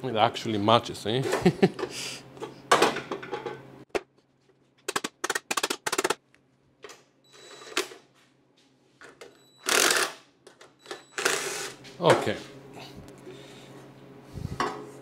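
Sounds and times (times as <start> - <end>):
cordless driver spinning bolts: 9.7 - 10.2.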